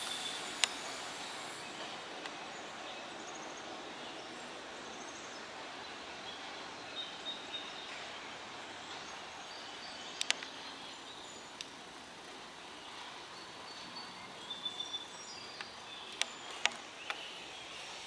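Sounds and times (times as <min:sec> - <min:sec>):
background hiss: 0:00.0 - 0:18.0
sharp clicks: 0:10.2 - 0:10.5.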